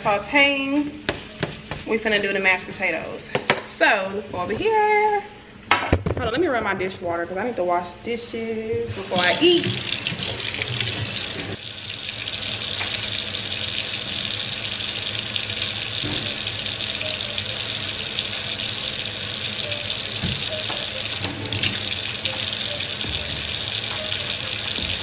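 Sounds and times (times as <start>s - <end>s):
faucet running into steel sink: 8.9s - 25.0s.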